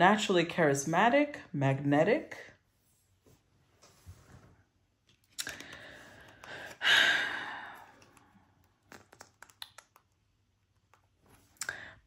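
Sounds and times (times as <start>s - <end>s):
cards clicking: 8.8s - 10.1s.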